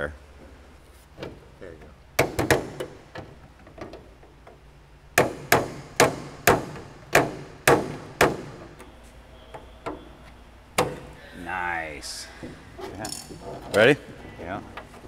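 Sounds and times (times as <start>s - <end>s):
hammer striking metal punch: 5.2s - 8.7s.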